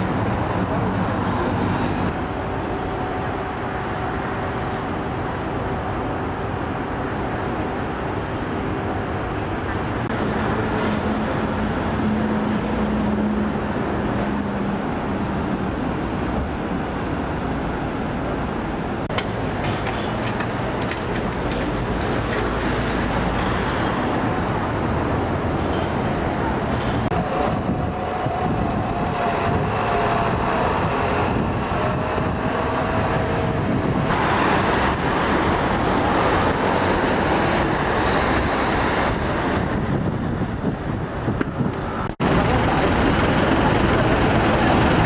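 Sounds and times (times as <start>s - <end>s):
city street traffic: 0.0s - 45.0s.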